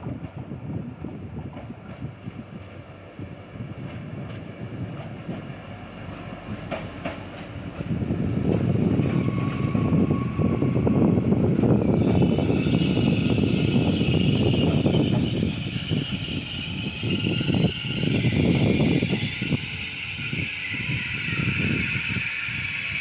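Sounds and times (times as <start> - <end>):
train wheels rumbling over rails: 0.0 - 23.0
brake squeal: 8.6 - 23.0.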